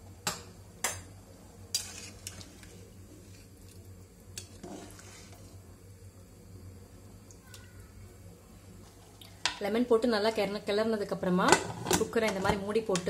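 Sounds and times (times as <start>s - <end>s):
ladle stirring rice in liquid: 1.7s - 5.6s.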